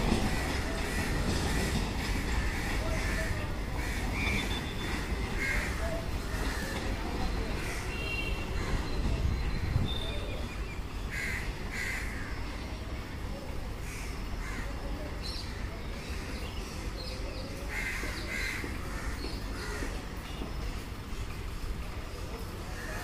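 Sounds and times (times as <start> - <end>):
bird cawing: 11.1 - 12.4.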